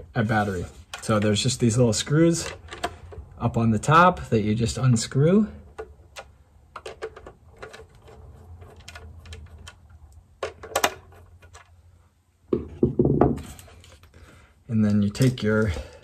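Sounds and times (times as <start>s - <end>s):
plastic case knocks: 12.5s - 13.4s.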